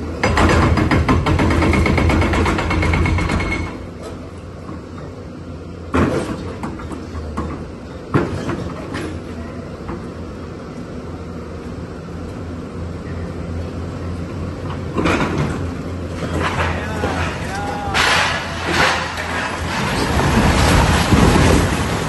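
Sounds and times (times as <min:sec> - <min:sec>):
diesel engine humming: 0:09.6 - 0:22.0.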